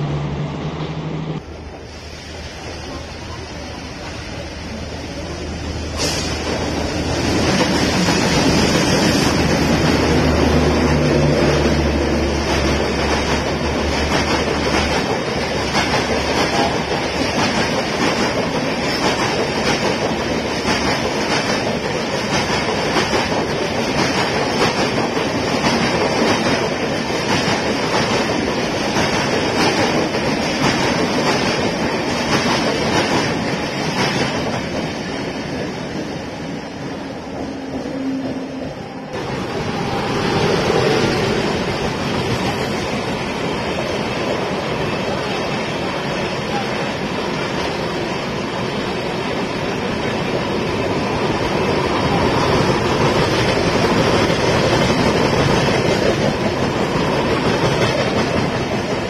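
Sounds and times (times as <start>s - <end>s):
train wheels rolling on rails: 0.0s - 59.0s
clickety-clack over rail joints: 11.5s - 36.1s, 49.7s - 59.0s.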